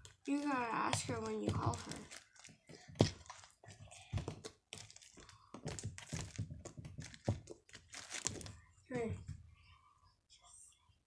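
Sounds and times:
handling clicks and crinkles: 0:00.0 - 0:08.6.

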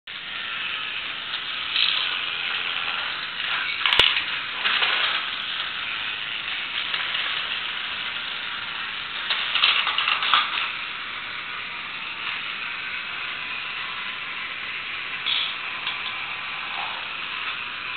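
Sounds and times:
toy motor whirring: 0:00.1 - 0:17.9
plastic parts clattering: 0:01.3 - 0:05.8, 0:09.2 - 0:10.8, 0:15.3 - 0:16.2.

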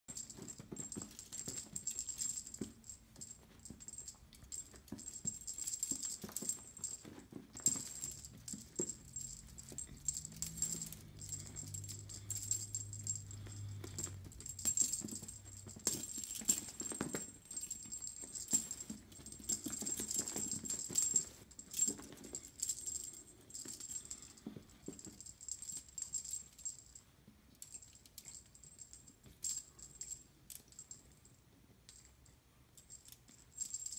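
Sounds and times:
cat toy rattling and clicking: 0:00.1 - 0:27.0.

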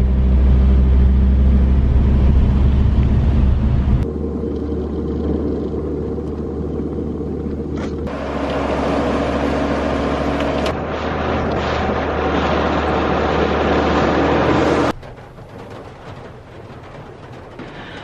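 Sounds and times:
low engine hum: 0:00.0 - 0:18.0
tyres on wet road: 0:00.0 - 0:18.0
heavy rain on car: 0:08.1 - 0:18.0.

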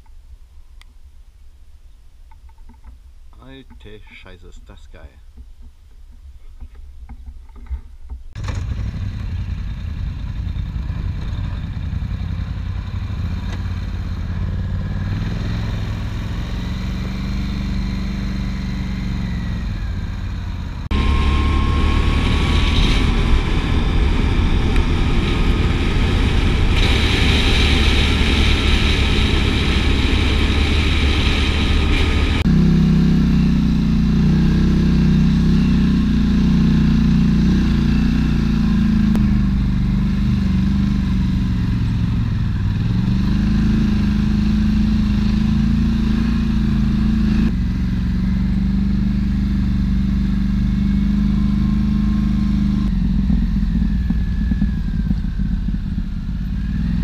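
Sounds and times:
quad bike engine running: 0:08.4 - 0:57.0
rushing noise: 0:20.8 - 0:32.5.

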